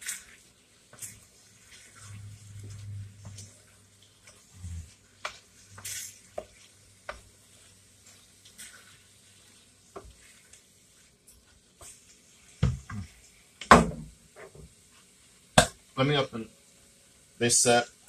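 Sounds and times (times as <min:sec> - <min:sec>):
spoon stirring pasta in sauce: 0:00.0 - 0:13.4.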